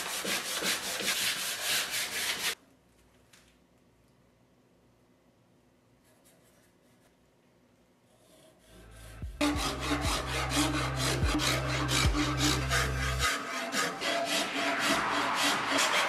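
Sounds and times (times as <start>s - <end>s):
metal file rasping on wood: 0.0s - 2.6s, 8.1s - 16.0s.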